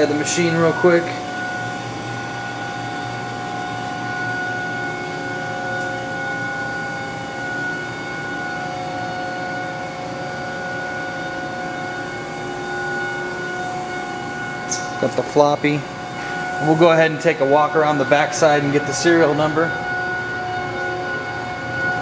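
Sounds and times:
machining center humming and whining: 0.0 - 22.0.

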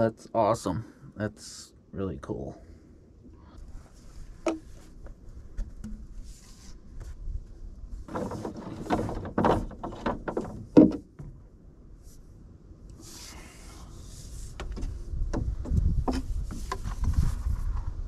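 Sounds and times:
plastic pipes knocking and clattering: 5.6 - 6.1, 8.1 - 11.4.

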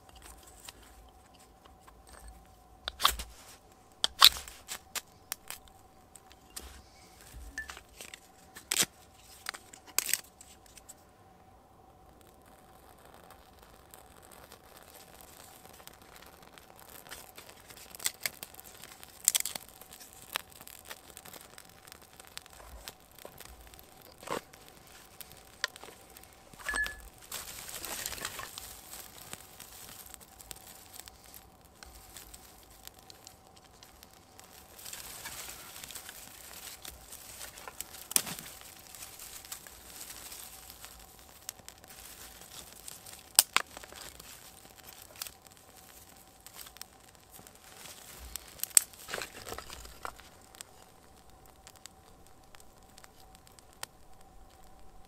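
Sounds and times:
kindling crinkling and rustling: 0.0 - 11.0, 12.4 - 55.0
twigs snapping: 0.0 - 11.0, 14.9 - 54.7
flame rushing hiss: 0.0 - 55.0.

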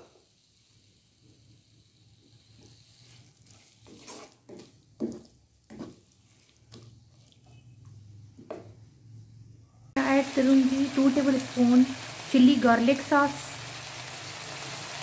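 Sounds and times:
vegetables sizzling faintly: 0.0 - 8.2, 10.0 - 15.0
spatula scraping a pan: 1.9 - 7.7.

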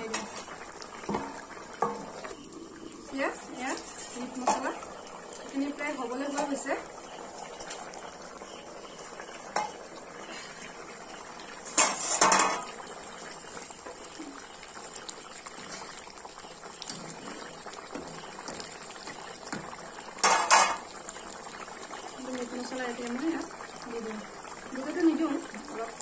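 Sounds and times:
gravy simmering and bubbling: 0.0 - 26.0
metal spoon scraping a pan: 11.6 - 12.7.

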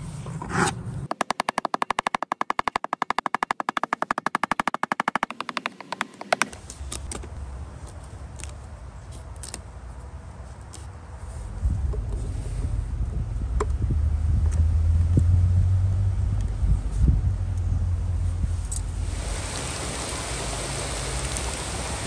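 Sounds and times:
wind rumble on microphone: 11.4 - 19.5.

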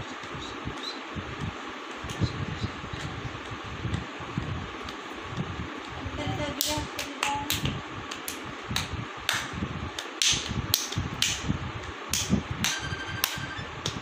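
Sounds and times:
fan hum: 0.0 - 14.0
sharp clicks and smacks: 6.6 - 11.5, 12.1 - 14.0.

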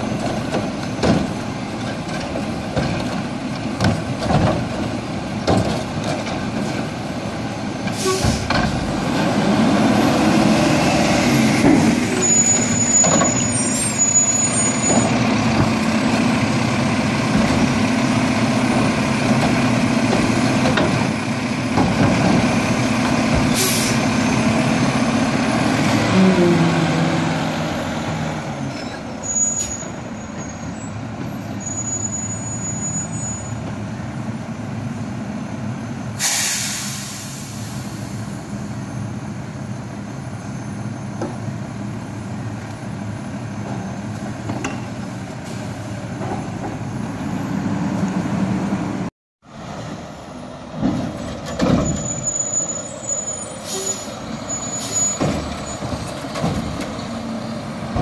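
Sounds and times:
garbage truck diesel engine: 0.0 - 58.0
air brake hiss: 7.9 - 8.5, 23.5 - 24.0, 36.2 - 38.3, 53.6 - 54.2.

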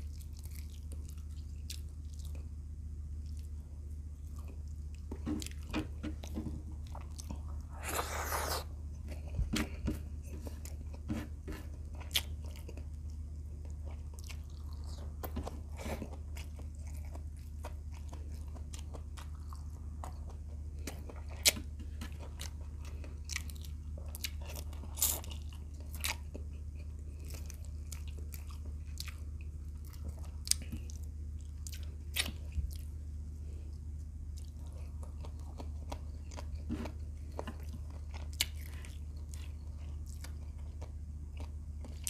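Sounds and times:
chewing and crunching food: 0.0 - 42.0
low hum: 0.1 - 24.2.

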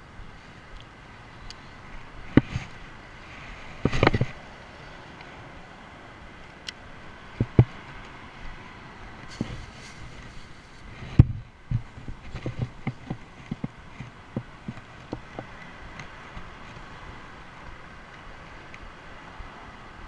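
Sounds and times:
steady background hiss: 0.0 - 20.0
camera handling knocks and rubs: 3.8 - 4.4, 9.3 - 15.5.

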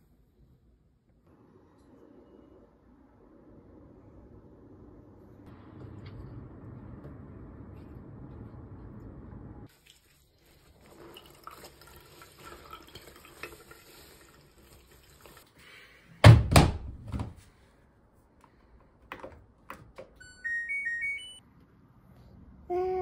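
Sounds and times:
laundry splashing and rubbing: 9.7 - 15.5
washing machine chime beeps: 20.2 - 21.4.

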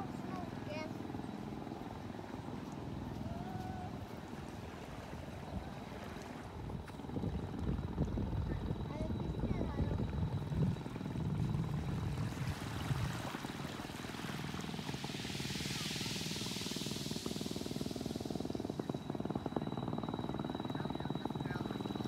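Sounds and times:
engine running with even pulse: 0.0 - 22.0
soft rush of water: 11.7 - 18.4.

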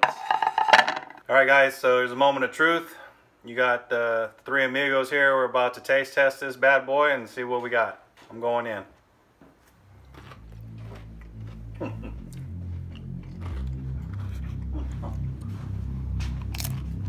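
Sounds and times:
background music with heavy bass: 9.8 - 17.0
crunching and chewing chips: 10.0 - 17.0.

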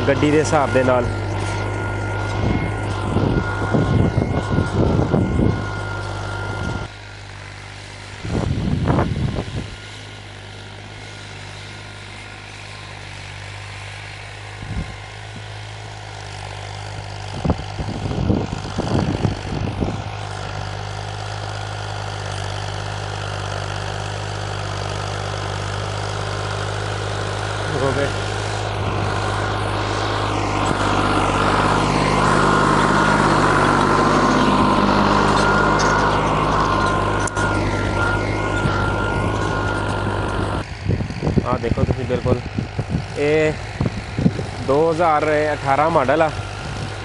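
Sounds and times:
bursts of rumbling noise: 0.0 - 6.9
tractor diesel engine running: 0.0 - 47.0.

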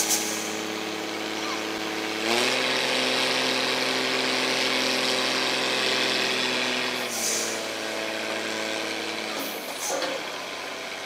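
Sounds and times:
truck diesel engine running: 0.0 - 11.0.

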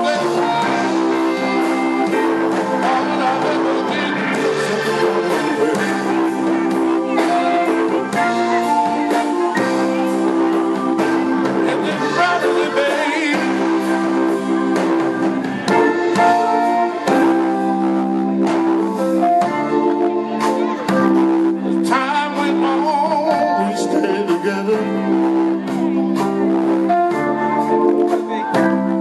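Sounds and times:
man singing: 0.0 - 15.0, 21.0 - 25.6
electric blues band playing: 0.0 - 29.0
electric guitar: 0.0 - 29.0.

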